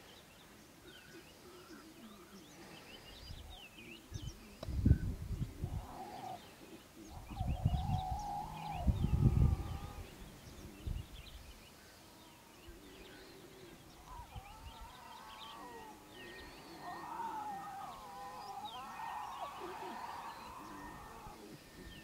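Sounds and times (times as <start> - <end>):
small birds chirping: 0.0 - 22.0
lion cubs growling: 5.6 - 10.8, 12.2 - 22.0.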